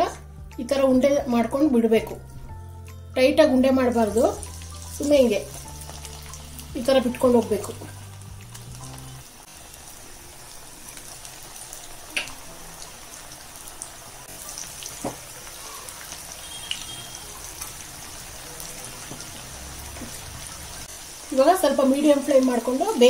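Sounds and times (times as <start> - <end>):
deep-frying sizzle in oil: 3.7 - 23.0.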